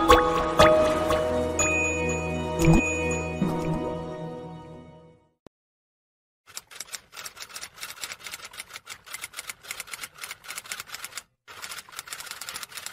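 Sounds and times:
manual typewriter typing: 6.5 - 12.9.

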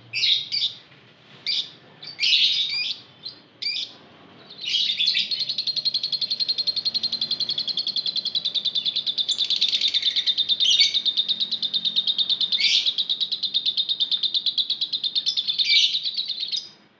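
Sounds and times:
sharp bird calls: 0.0 - 0.8, 1.5 - 16.9
lovebird chattering trill: 4.5 - 16.8.

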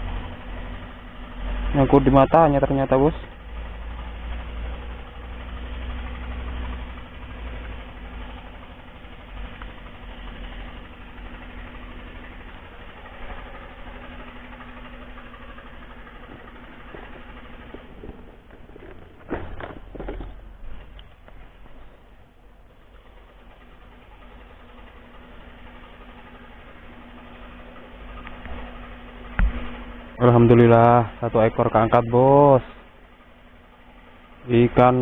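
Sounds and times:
engine humming: 0.0 - 35.0
handling knocks and rustles: 16.2 - 22.0.

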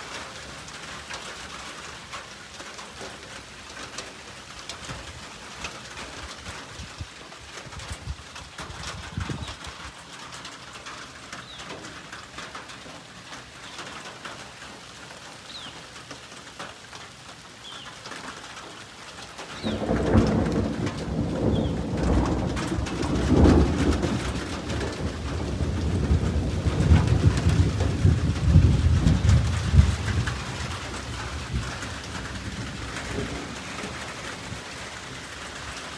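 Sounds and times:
rain falling: 0.0 - 35.9
thunder rumbling: 19.6 - 34.9.

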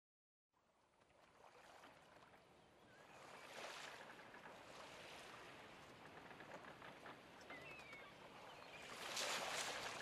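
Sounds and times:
small waves on sandy shore: 0.6 - 10.0.

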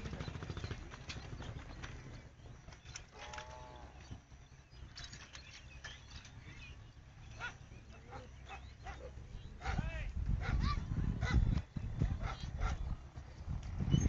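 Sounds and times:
outdoor background: 0.0 - 14.0
scattered clicks: 2.7 - 3.6.

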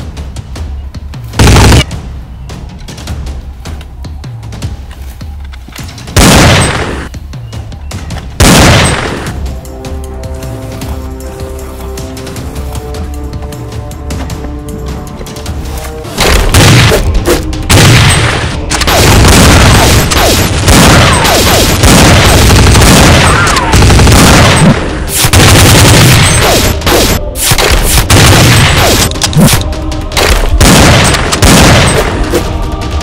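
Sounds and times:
gunfire volleys: 1.4 - 1.9, 16.2 - 29.6, 30.2 - 32.4
heavy explosion booms: 1.4 - 1.9, 6.2 - 6.9, 8.4 - 9.2, 17.7 - 26.8, 30.6 - 32.0.

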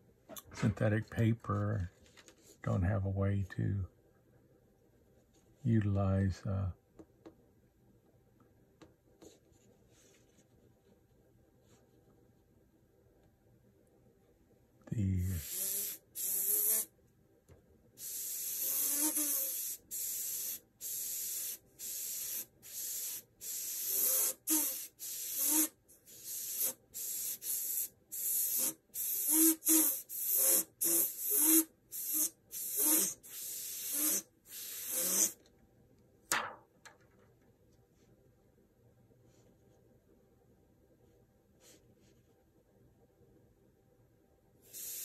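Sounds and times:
airbrush spraying hissing bursts: 15.4 - 16.9, 18.0 - 35.4, 44.7 - 45.0.

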